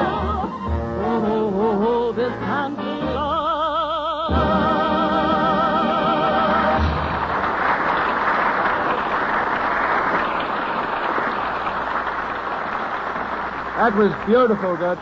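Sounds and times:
audience applauding: 6.1s - 15.0s.

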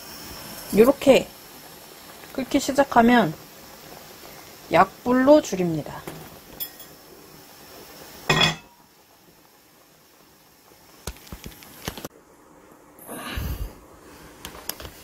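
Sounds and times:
glass lid clinking on pot: 6.6s - 7.0s, 8.3s - 8.8s.

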